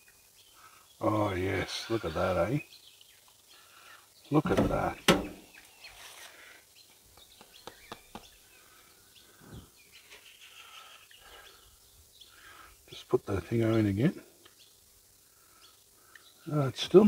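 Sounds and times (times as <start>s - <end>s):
faint birdsong: 0.0s - 17.0s
soft thump: 4.5s - 5.4s.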